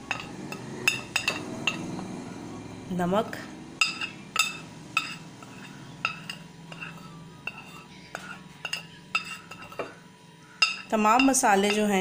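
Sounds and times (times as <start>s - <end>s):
spoon clinking on ceramic and glass: 0.0s - 2.0s, 3.8s - 10.0s, 10.6s - 12.0s
faint steady hum: 0.0s - 12.0s.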